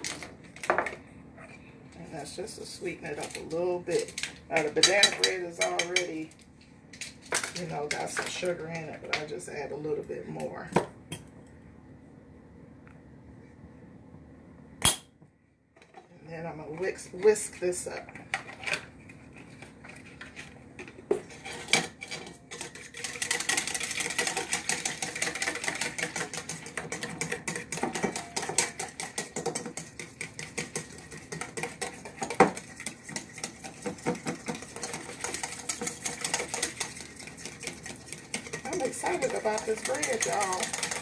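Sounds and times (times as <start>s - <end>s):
whisk clicking against metal bowl: 22.5s - 41.0s.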